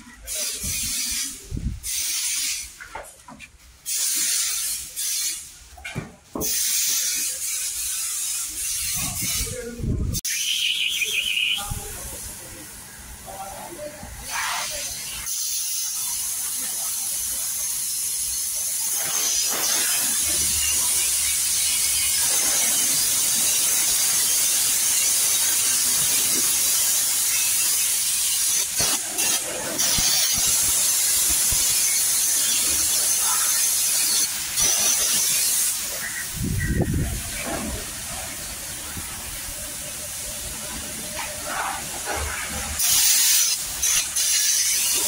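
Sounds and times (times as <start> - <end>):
pressurised jet hissing: 14.2 - 45.0.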